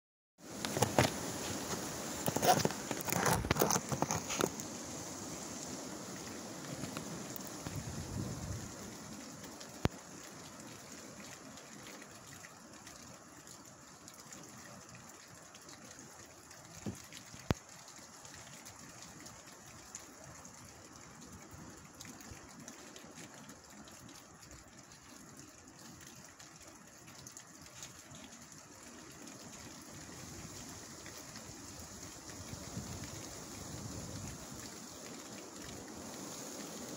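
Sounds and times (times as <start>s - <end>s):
strong wind rushing through trees: 0.4s - 9.8s, 29.7s - 36.9s
wind buffeting microphone: 7.6s - 8.8s.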